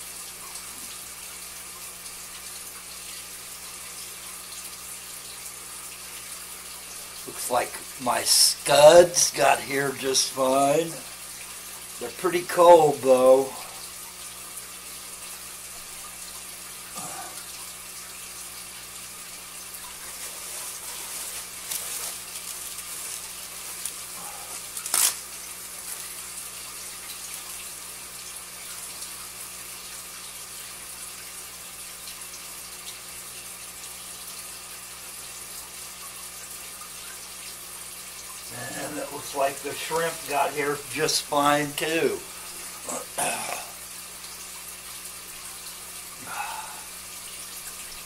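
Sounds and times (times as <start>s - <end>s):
aquarium filter water splashing: 0.0s - 48.0s
plastic bags rustling: 19.9s - 25.2s, 25.8s - 26.2s.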